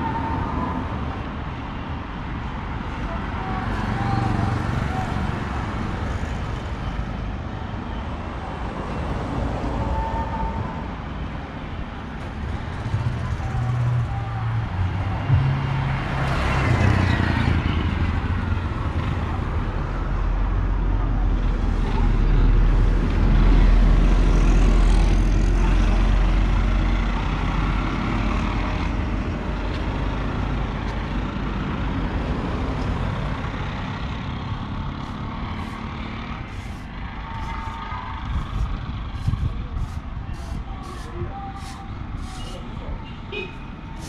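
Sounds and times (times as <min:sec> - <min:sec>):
truck rumbling past: 0:12.3 - 0:19.8.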